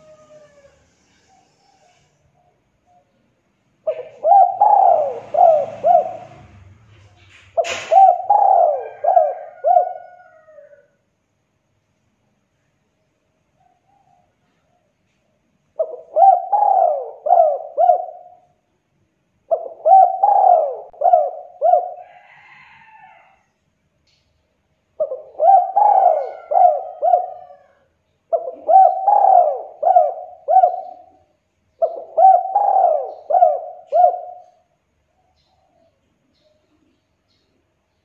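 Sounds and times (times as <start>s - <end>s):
dove cooing: 0.0s - 3.1s, 3.8s - 6.8s, 7.6s - 10.9s, 15.8s - 18.6s, 19.5s - 23.3s, 25.0s - 34.8s.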